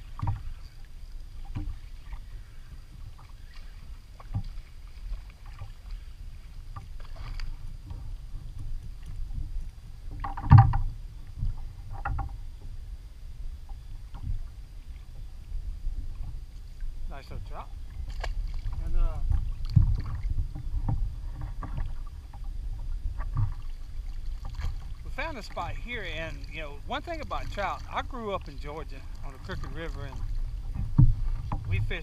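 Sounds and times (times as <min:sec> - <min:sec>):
water splashes: 0:00.0 - 0:12.5, 0:13.7 - 0:32.0
water and wind rumble: 0:00.0 - 0:32.0
knocks on kayak: 0:10.2 - 0:10.9.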